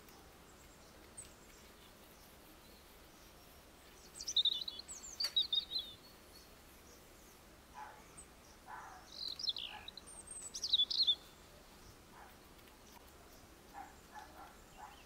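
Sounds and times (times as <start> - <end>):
songbirds twittering: 0.0 - 15.0.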